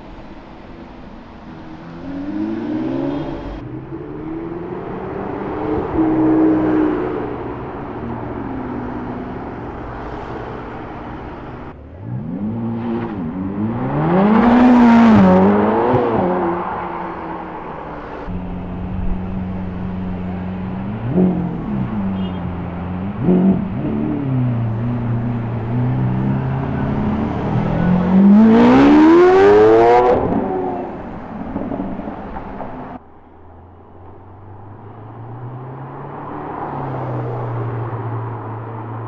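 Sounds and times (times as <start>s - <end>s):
car engine revving hard: 26.0s - 30.7s.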